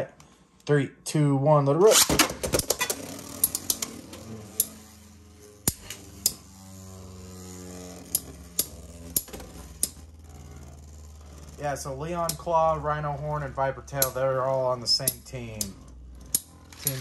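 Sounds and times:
spinning tops whirring hum: 1.8 - 17.0
spinning tops clacking together: 1.9 - 6.8
spinning tops clicking: 1.9 - 17.0.

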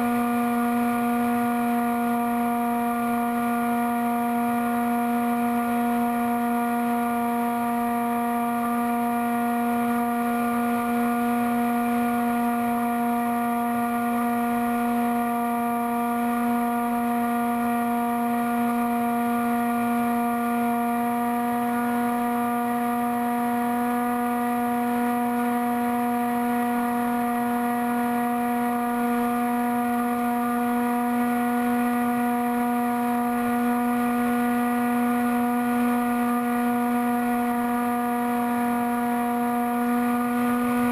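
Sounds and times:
model plane motor and propeller drone: 0.0 - 40.9.

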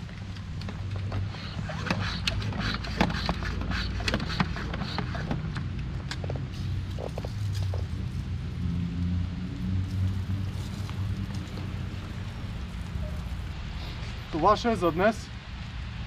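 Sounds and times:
pressure sprayer being pumped: 0.8 - 7.9.

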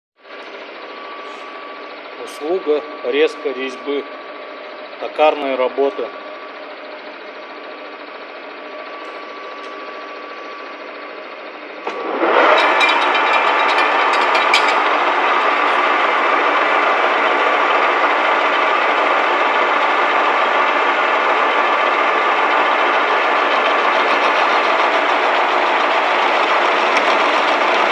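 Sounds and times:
gearing whine: 0.2 - 27.9
lathe hum: 0.4 - 27.9
lathe chuck spinning up: 11.8 - 27.9.

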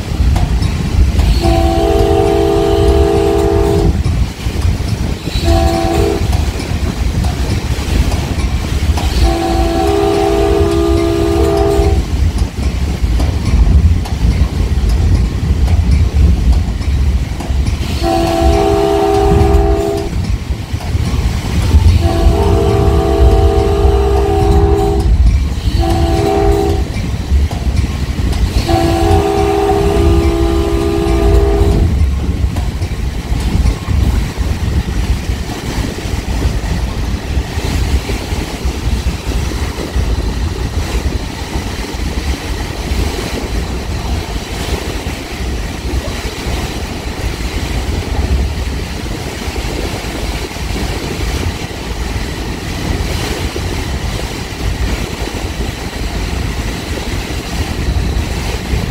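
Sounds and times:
train rumbling on track: 0.0 - 58.9
train horn blasts: 1.3 - 4.0, 5.3 - 6.4, 9.0 - 12.1, 17.8 - 20.2, 21.7 - 27.0, 28.5 - 32.0.

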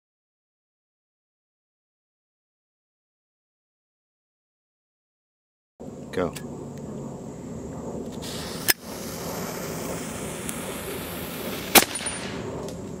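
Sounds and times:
fuse hissing and fizzing: 8.2 - 11.9.

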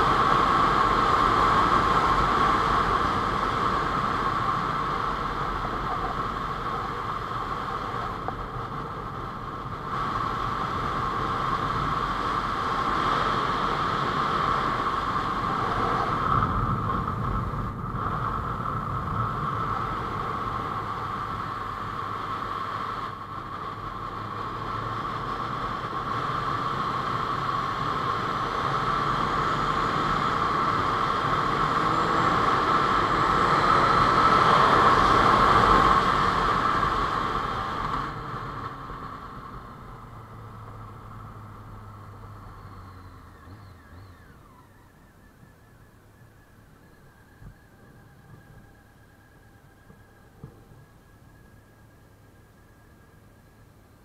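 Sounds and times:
wind rush on microphone: 0.0 - 43.2
motorcycle engine running: 0.0 - 54.0.

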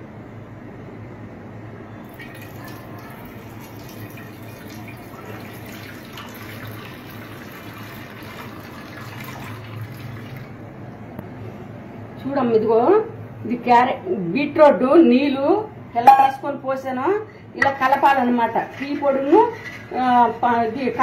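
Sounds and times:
juice pouring and splashing: 2.1 - 10.6.

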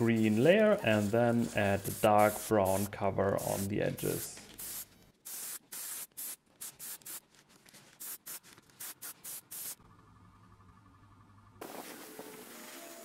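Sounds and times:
airbrush hissing bursts: 0.2 - 7.2, 8.0 - 9.8.

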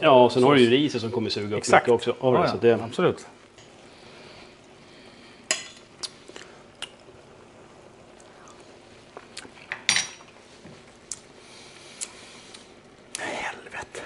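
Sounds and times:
kitchen utensils clinking: 9.7 - 10.3.

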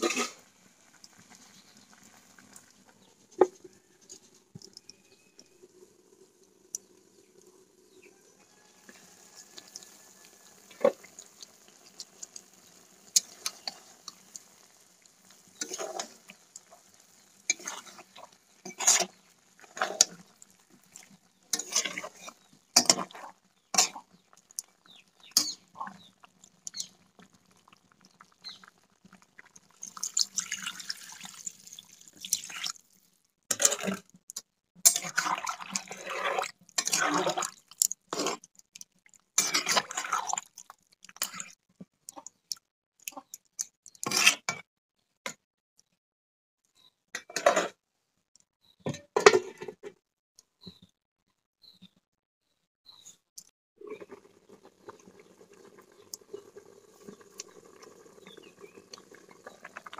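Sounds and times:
metal spatula scraping a pan: 0.0 - 0.4, 15.6 - 16.9, 17.5 - 20.3, 21.5 - 24.1, 34.8 - 37.4, 38.1 - 38.4, 39.4 - 40.2, 44.0 - 44.6, 47.3 - 47.8
water pouring into a pan: 0.0 - 34.0, 34.9 - 38.4, 39.4 - 41.5, 53.8 - 59.9.

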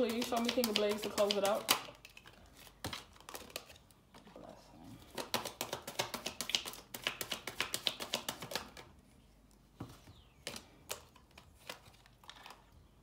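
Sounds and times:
card taps: 0.0 - 1.9
cards being shuffled: 0.0 - 4.0, 5.0 - 12.7.

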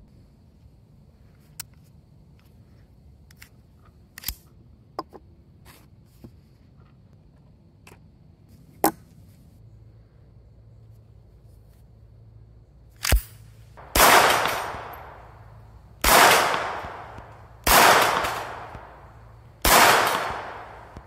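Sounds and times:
pistol metallic clicks: 13.0 - 15.4, 16.0 - 21.0.

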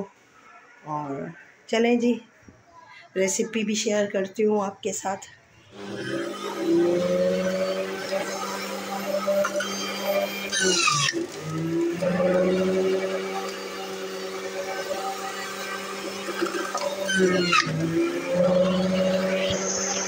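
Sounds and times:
juicer motor humming: 5.7 - 20.0.

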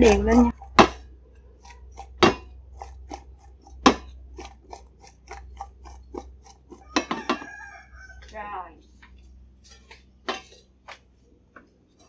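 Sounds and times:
fruit chunks tapping metal bowl: 2.0 - 7.5
knocks against metal bowl: 7.0 - 7.5.

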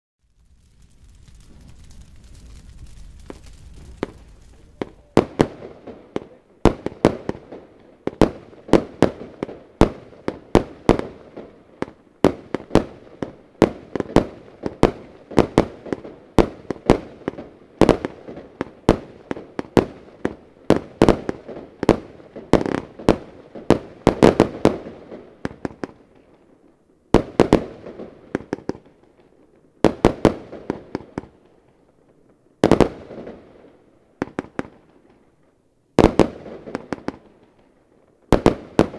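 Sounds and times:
firework cake shots and bursts: 0.2 - 26.2, 38.3 - 38.9.

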